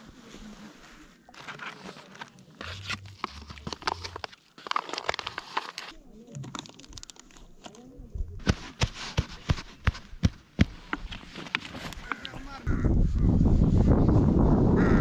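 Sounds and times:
plastic packet crinkling: 1.4s - 7.7s.

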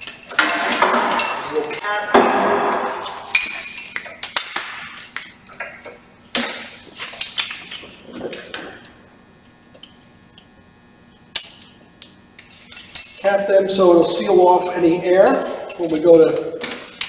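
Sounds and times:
metal caps clinking and clattering: 0.0s - 2.4s, 3.0s - 6.0s, 11.3s - 13.4s, 14.6s - 17.0s.

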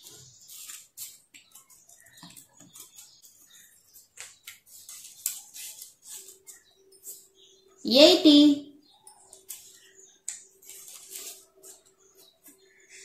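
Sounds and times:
paper flaps rustling and tapping: 0.0s - 3.4s, 4.0s - 6.6s, 9.3s - 12.6s.

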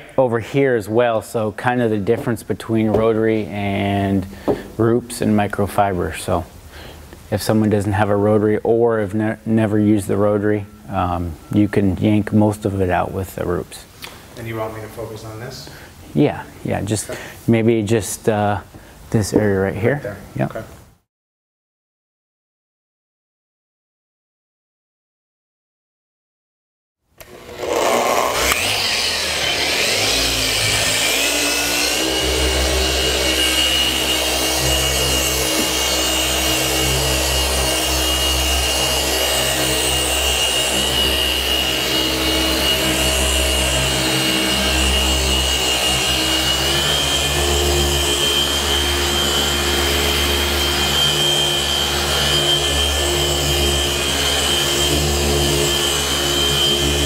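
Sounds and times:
electric polisher whining: 27.2s - 57.0s.

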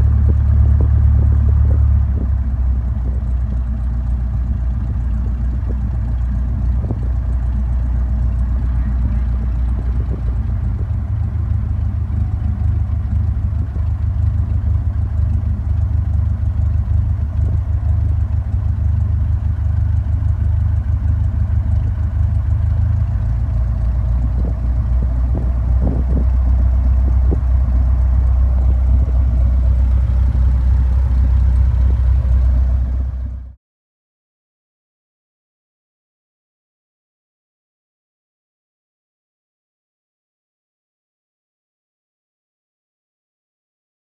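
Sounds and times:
small plane engine drone: 0.0s - 33.6s.

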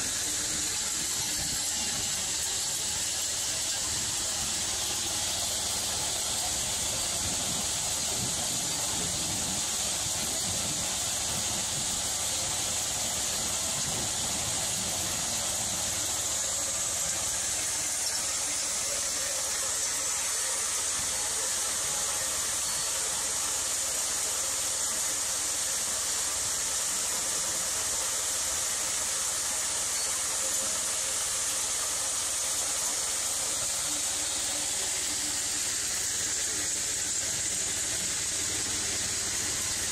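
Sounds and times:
hammer mill and conveyor running: 0.0s - 39.9s.

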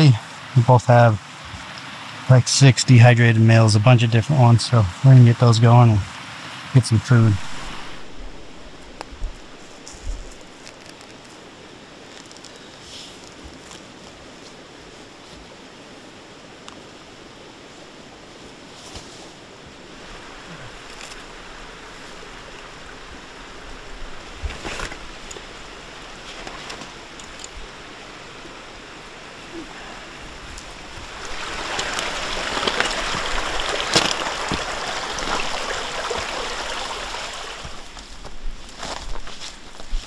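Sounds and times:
steady rushing hiss: 0.0s - 40.0s
footsteps through grass: 7.4s - 11.4s, 37.6s - 40.0s.

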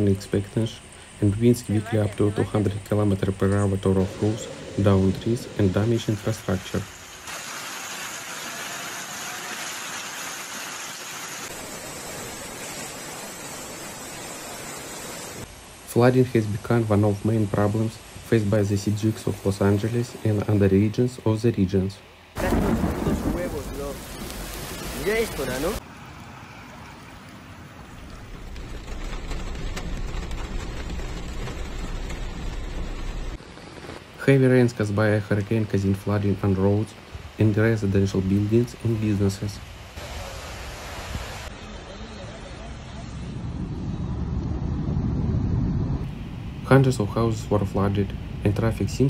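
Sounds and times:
rain and floodwater rushing: 0.0s - 49.0s
heavy rain on a car: 6.0s - 15.9s, 22.4s - 25.8s, 27.8s - 34.3s.

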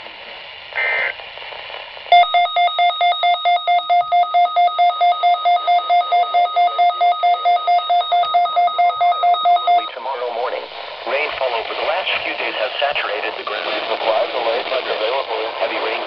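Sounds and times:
high data burst: 0.7s - 1.2s
electronic alarm beeping fast: 2.1s - 10.0s.

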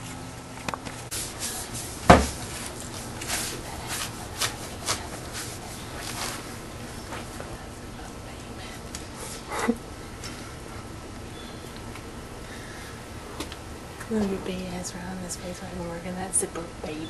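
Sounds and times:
brush scrubbing car bumper: 1.1s - 6.4s
sharp knock: 2.1s - 2.4s.

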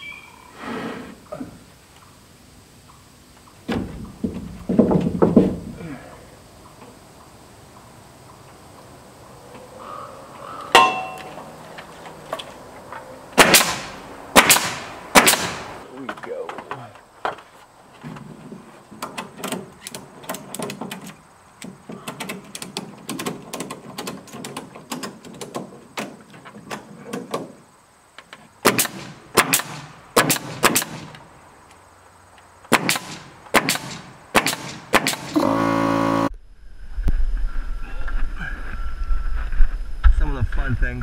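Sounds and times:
wooden board knocking and scraping: 3.6s - 5.8s
pneumatic nail gun firing: 13.4s - 15.8s, 28.6s - 31.2s, 32.7s - 36.3s.

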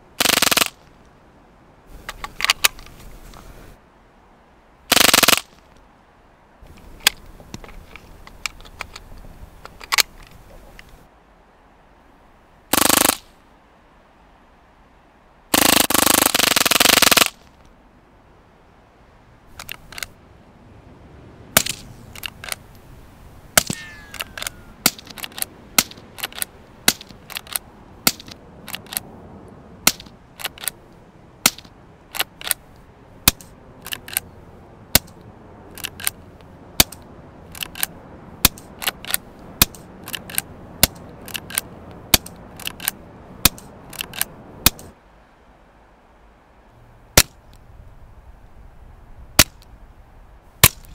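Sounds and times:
rifle lever clacking: 24.1s - 29.0s.

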